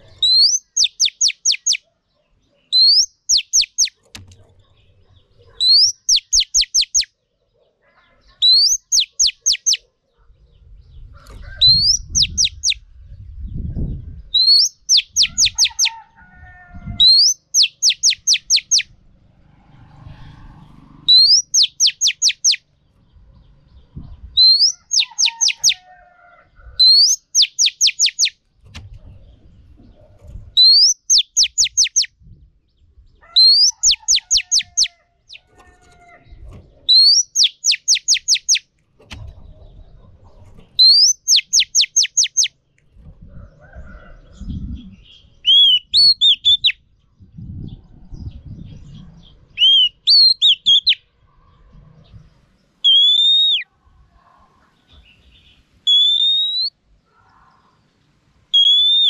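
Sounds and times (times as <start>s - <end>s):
bird calling sharp chips: 0.2s - 1.8s, 2.8s - 4.3s, 8.6s - 9.8s, 17.1s - 18.9s, 30.7s - 32.1s, 37.0s - 38.6s, 52.9s - 53.6s, 55.9s - 56.7s, 58.6s - 59.0s
faint low rumble: 46.8s - 49.6s.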